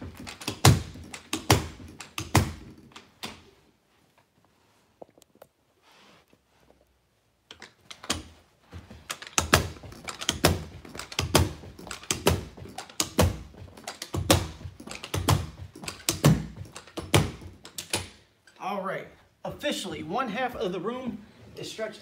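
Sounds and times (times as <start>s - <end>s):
carpet knee kicker thuds: 8.2s - 17.6s.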